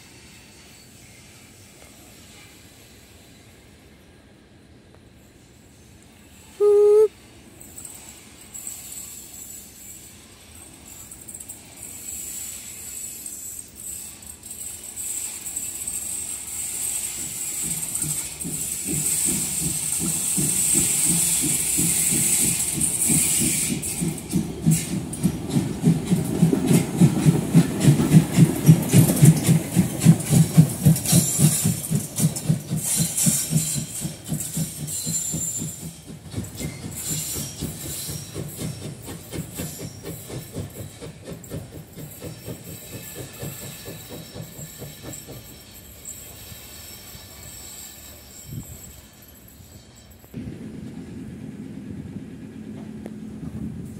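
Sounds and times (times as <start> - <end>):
steam locomotive chuffing: 5.2 - 53.9
steam hiss: 7.8 - 50.3.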